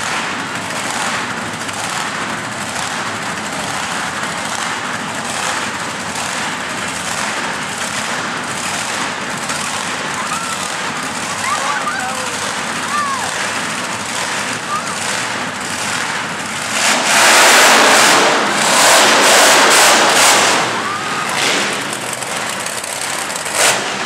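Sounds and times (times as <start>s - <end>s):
truck engines idling: 0.0s - 24.0s.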